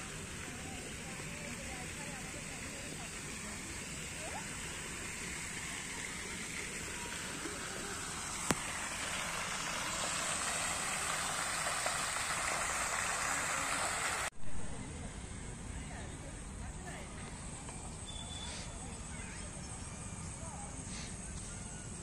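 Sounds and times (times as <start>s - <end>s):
fountain water splashing: 0.0s - 14.3s.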